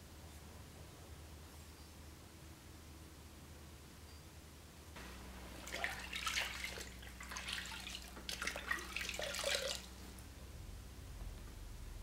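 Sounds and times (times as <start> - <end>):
water sloshing in a bucket: 5.5 - 10.2.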